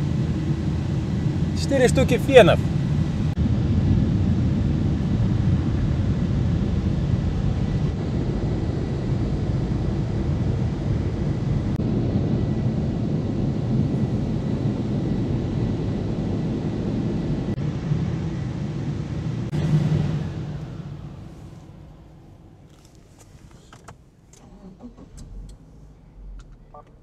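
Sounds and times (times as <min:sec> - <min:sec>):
blowers rushing air: 0:00.7 - 0:03.4, 0:18.5 - 0:23.8.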